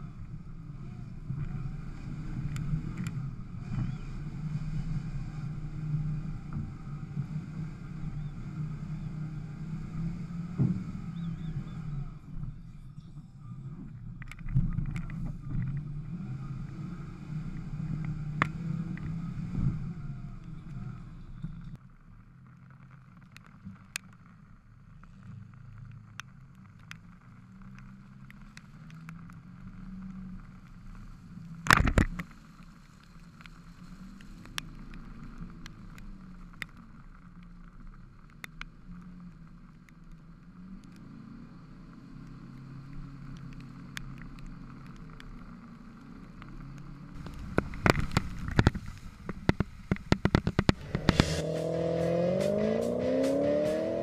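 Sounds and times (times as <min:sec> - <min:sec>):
off-road engine revving: 0:00.0 - 0:12.5, 0:14.5 - 0:21.7, 0:45.9 - 0:54.0
music: 0:50.8 - 0:54.0.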